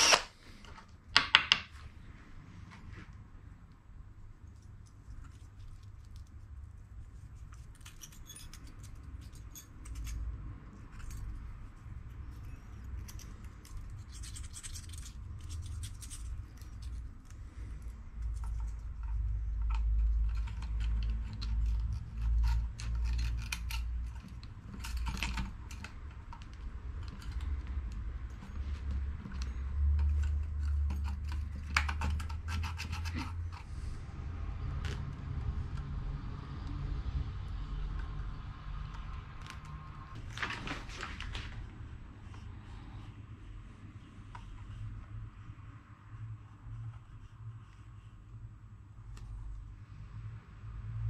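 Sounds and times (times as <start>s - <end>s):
metal parts clicking and scraping: 7.3s - 11.6s, 12.3s - 17.4s, 18.2s - 27.6s, 28.3s - 33.7s.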